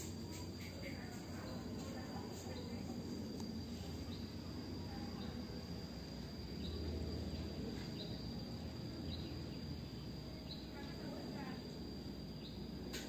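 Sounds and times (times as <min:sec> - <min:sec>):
high-pitched insect drone: 0:00.0 - 0:13.0.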